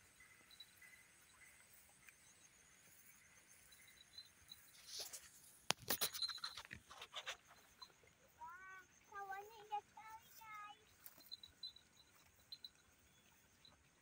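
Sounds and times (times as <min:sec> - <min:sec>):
faint outdoor hiss: 0:00.0 - 0:14.0.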